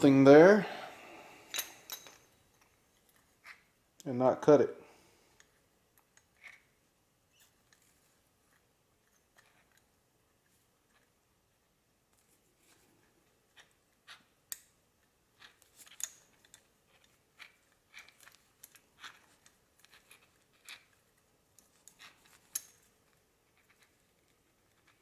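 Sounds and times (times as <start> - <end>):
metal parts clicking and scraping: 15.4 - 25.0.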